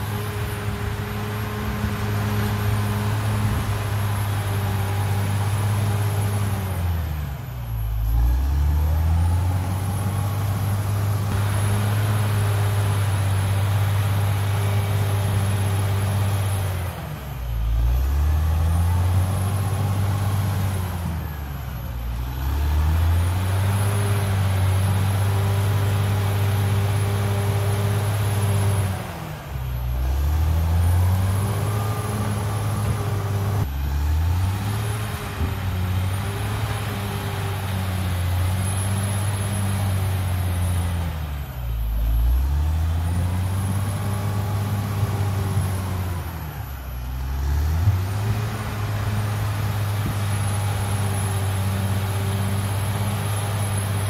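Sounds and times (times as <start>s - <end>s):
bulldozer diesel engine working: 0.0s - 54.0s.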